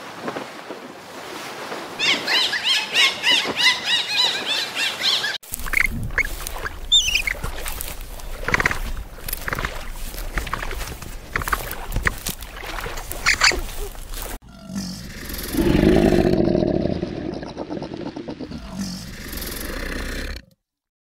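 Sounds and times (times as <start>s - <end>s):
capybara clicking and squeaking: 5.5s - 12.4s, 13.1s - 14.0s
crocodile growling: 14.4s - 20.6s.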